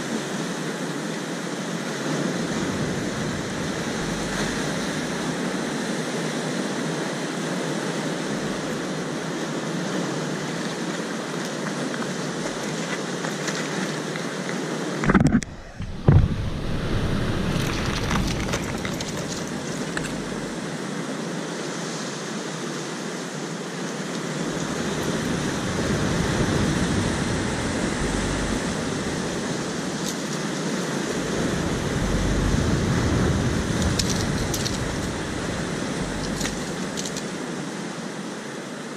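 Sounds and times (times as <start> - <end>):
surf breaking over rocks: 1.8 - 20.8, 24.2 - 37.7
wind rumbling on microphone: 1.9 - 6.7, 7.8 - 9.2, 15.0 - 20.7, 24.2 - 37.6
loud thumps: 15.1 - 19.3.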